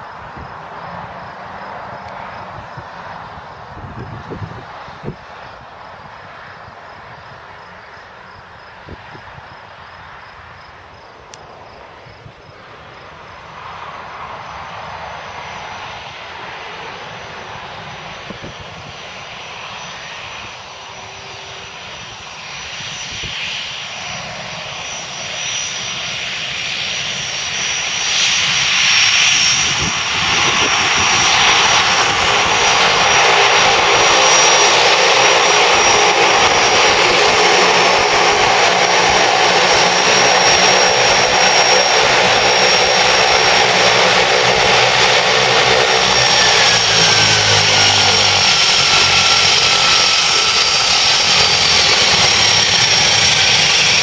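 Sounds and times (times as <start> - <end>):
turboprop plane taxiing: 0.0 - 54.0.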